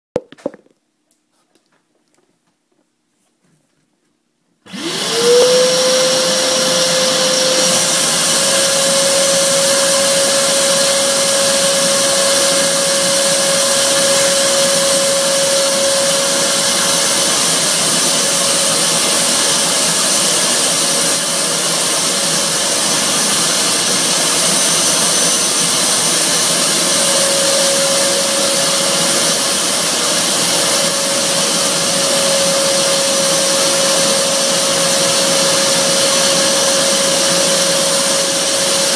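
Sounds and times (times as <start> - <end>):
vacuum cleaner motor whine: 4.6 - 38.9.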